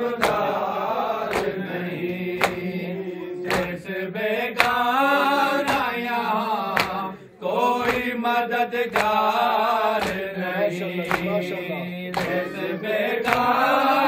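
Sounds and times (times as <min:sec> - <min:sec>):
men chanting a lament: 0:00.0 - 0:14.0
hands beating on chests: 0:12.2 - 0:13.5.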